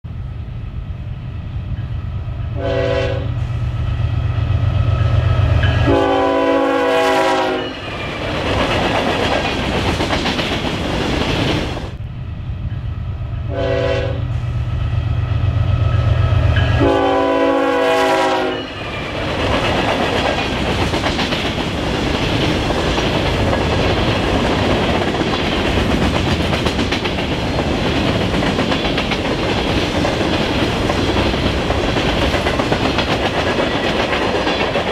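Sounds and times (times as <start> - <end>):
diesel locomotive engine rumbling: 0.0 - 34.9
locomotive air horn: 2.6 - 3.6, 5.8 - 7.8, 13.5 - 14.5, 16.8 - 18.8
freight cars rolling on rails: 7.5 - 12.0, 18.5 - 34.9.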